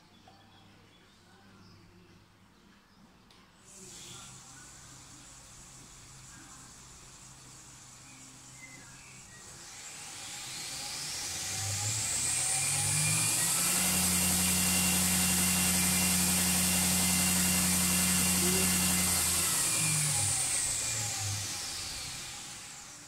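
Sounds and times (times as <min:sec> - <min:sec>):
belt grinder motor whining: 0:09.1 - 0:23.0.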